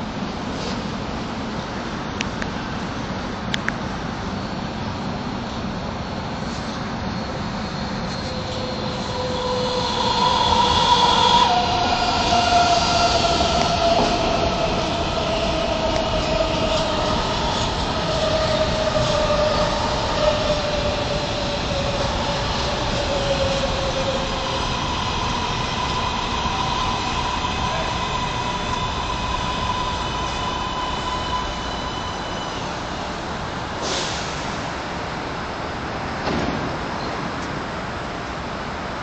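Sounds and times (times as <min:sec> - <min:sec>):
train wheels rumbling on rails: 0:00.0 - 0:38.5
steady higher tone: 0:07.2 - 0:33.7.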